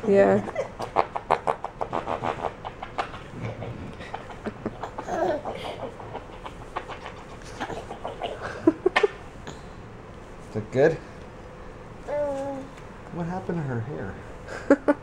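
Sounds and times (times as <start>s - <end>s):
baby giggling: 3.5s - 6.6s, 7.3s - 9.1s.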